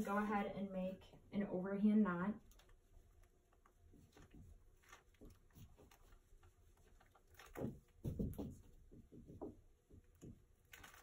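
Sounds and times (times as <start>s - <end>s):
rope rustling and clicking: 2.4s - 11.0s.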